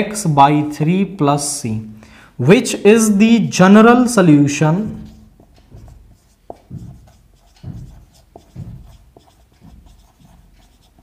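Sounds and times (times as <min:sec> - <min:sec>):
pen tapping: 0:04.8 - 0:11.0
pen writing strokes: 0:04.9 - 0:11.0.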